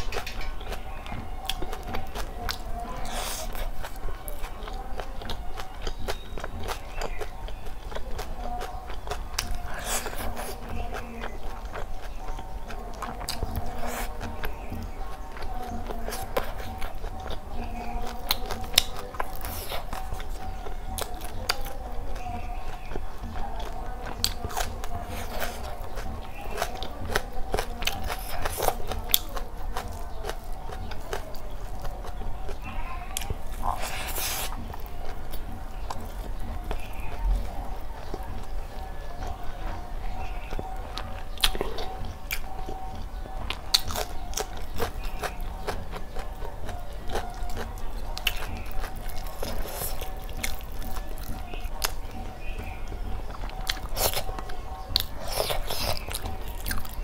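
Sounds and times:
chewing and mouth smacks: 0.0s - 57.0s
fingers squishing rice on plate: 0.0s - 57.0s.

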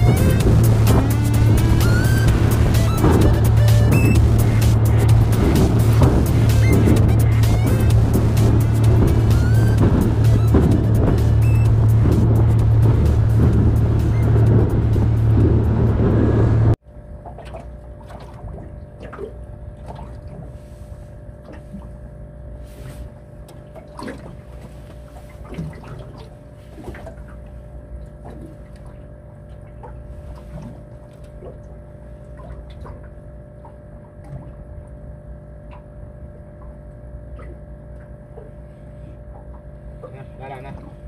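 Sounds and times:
boat engine running: 0.0s - 41.0s
steady low hum: 0.0s - 41.0s
water lapping against hull: 0.0s - 41.0s.

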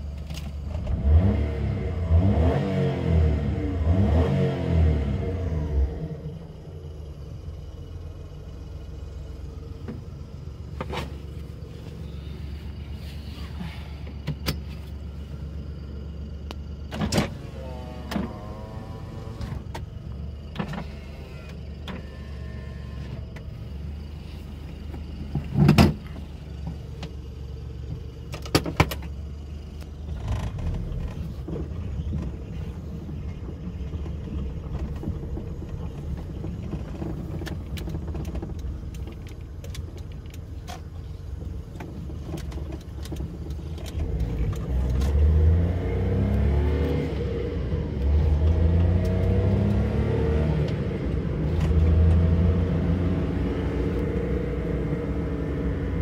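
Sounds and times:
car engine idling: 0.0s - 2.3s, 3.1s - 56.0s
sharp clicks and knocks: 41.6s - 45.2s.

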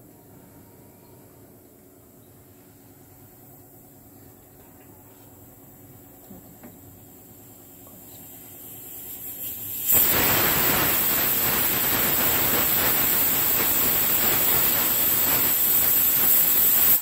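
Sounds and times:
steam hissing: 7.0s - 17.0s
shrill pressure cooker whistle: 9.9s - 17.0s.

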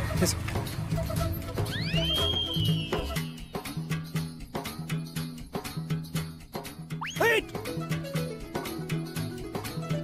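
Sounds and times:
folk-style film music: 0.0s - 10.0s.

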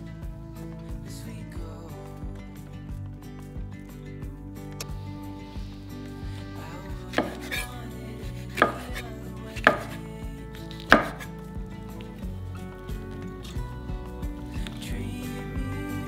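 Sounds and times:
knife cutting onto wooden board: 7.2s - 7.7s, 8.5s - 9.0s, 9.6s - 10.0s, 10.8s - 11.3s.

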